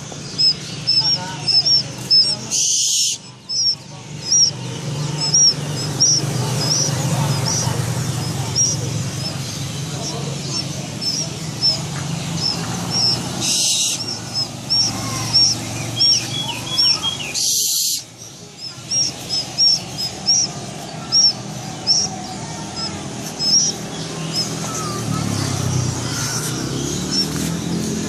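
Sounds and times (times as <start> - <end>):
small bird chirping: 0.0 - 28.0.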